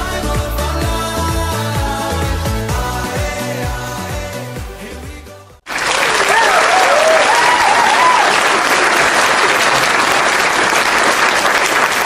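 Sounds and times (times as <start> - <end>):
crowd applauding and cheering: 5.6 - 12.0
wavering whoops: 6.3 - 8.4.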